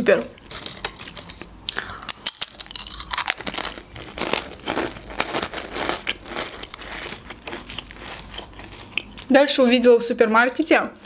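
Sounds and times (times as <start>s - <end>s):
potato chips crunched and chewed: 0.5s - 9.3s.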